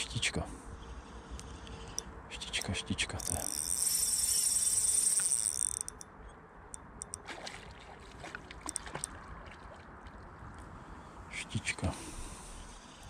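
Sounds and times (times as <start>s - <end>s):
fishing reel whirring: 3.2s - 6.0s.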